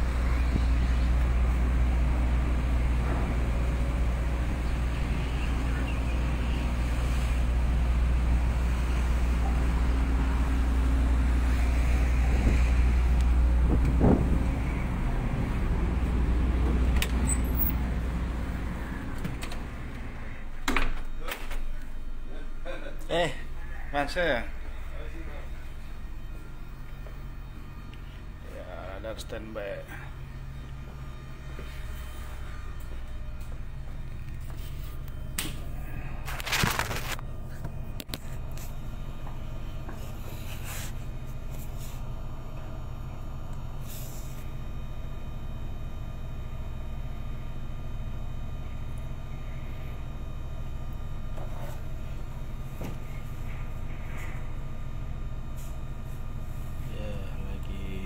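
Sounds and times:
ship engines rumbling: 0:00.0 - 0:36.4
wind on microphone: 0:13.6 - 0:14.6.

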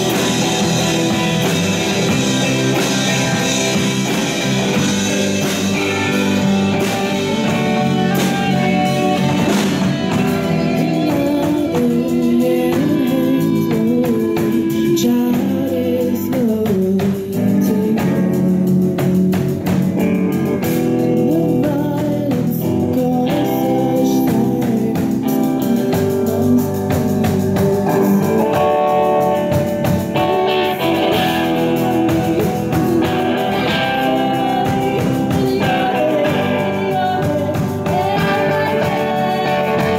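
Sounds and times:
drum and cymbal strokes: 0:00.0 - 0:21.4
bass guitar: 0:00.0 - 0:39.9
electric guitar: 0:00.0 - 0:39.9
woman singing: 0:05.0 - 0:18.8, 0:21.0 - 0:29.0, 0:30.2 - 0:39.9.

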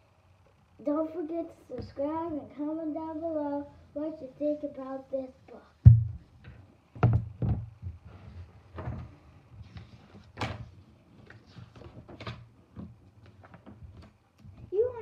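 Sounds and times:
book knocks and rustles: 0:05.9 - 0:08.0.

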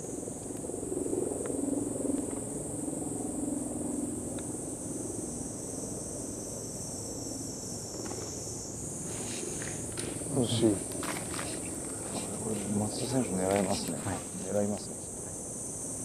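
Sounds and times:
insect chorus: 0:00.0 - 0:16.0
low background murmur: 0:10.3 - 0:14.9.

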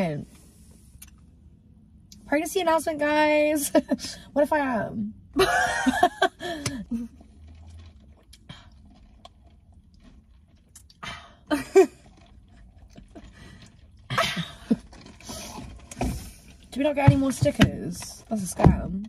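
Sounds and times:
chewing: 0:06.6 - 0:11.0, 0:11.9 - 0:16.7.

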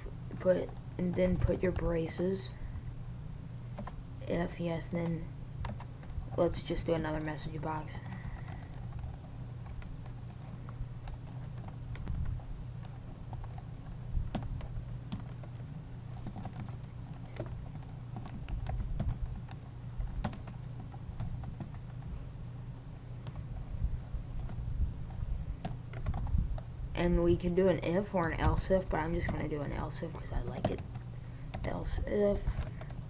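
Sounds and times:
steady low hum: 0:00.0 - 0:33.0
keyboard typing clicks: 0:16.2 - 0:19.6.

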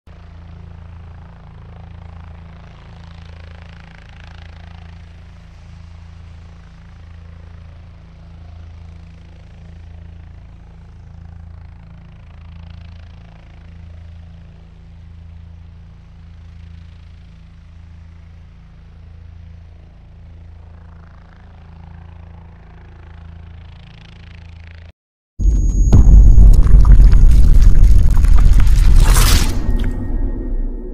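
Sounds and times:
helicopter rotor throb: 0:00.1 - 0:26.5
rushing noise: 0:25.4 - 0:30.9.

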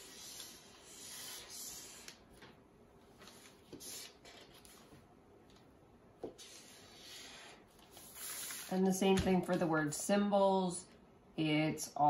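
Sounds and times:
marker scratching on paper: 0:00.0 - 0:02.2, 0:03.2 - 0:04.8, 0:06.2 - 0:08.8.

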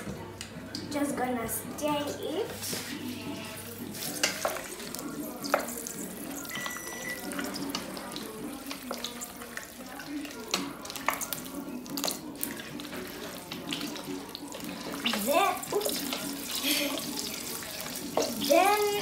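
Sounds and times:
spoon stirring pasta in pot: 0:03.4 - 0:18.8.

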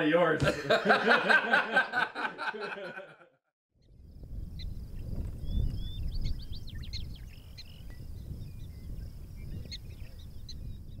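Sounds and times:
birds chirping: 0:03.8 - 0:11.0
wind rumble on microphone: 0:03.8 - 0:11.0.

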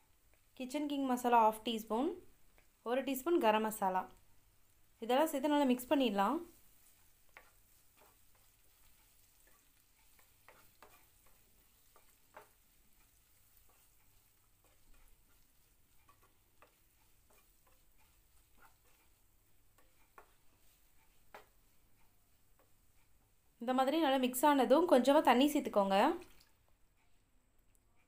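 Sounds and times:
faint frying hiss: 0:00.0 - 0:28.0
spatula scraping a pan: 0:04.6 - 0:23.4.

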